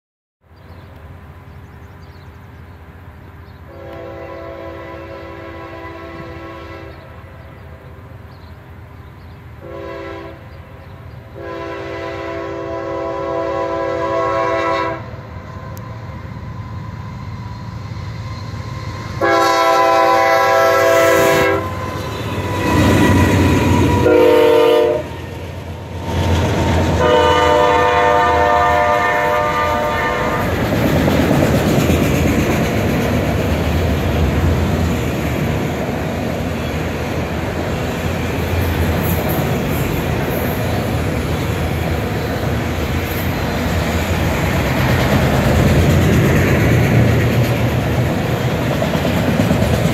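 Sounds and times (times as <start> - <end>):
train wheels rumbling on rails: 0.6 - 49.9
locomotive horn blasts: 3.7 - 7.1, 9.6 - 10.5, 11.4 - 15.2, 19.2 - 22.0, 22.6 - 25.2, 26.9 - 30.6.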